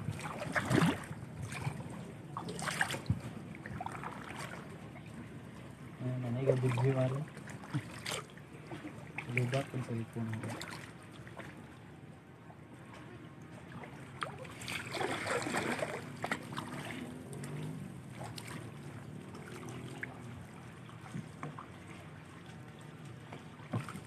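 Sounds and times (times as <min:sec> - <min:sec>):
paddles splashing in water: 0:00.0 - 0:11.8, 0:12.6 - 0:24.0
rush of water: 0:00.0 - 0:11.8, 0:12.8 - 0:24.0.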